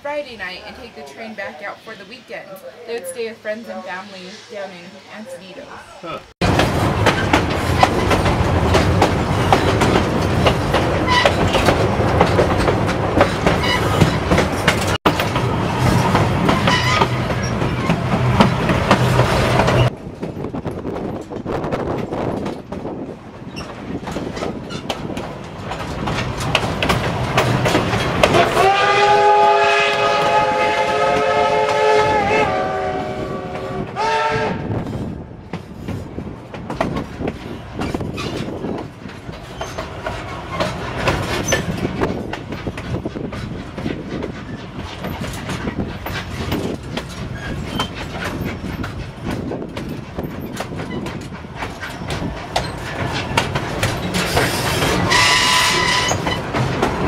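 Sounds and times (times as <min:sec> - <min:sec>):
train wheels clicking over rail joints: 0:06.4 - 0:32.3, 0:34.9 - 0:57.0
steam whistle blasts: 0:28.4 - 0:34.7, 0:55.1 - 0:56.2.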